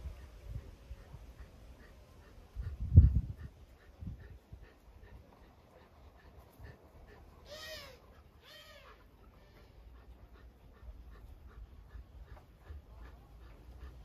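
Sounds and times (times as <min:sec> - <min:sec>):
dog whimpering: 0:07.4 - 0:09.7.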